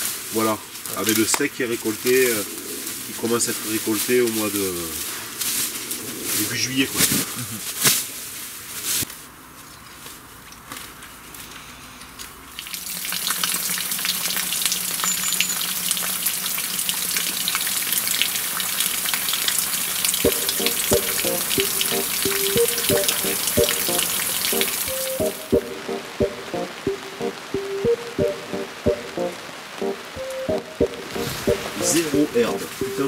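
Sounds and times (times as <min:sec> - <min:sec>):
sprinkler spraying water: 0:12.6 - 0:33.0
plucked melody: 0:20.2 - 0:33.0.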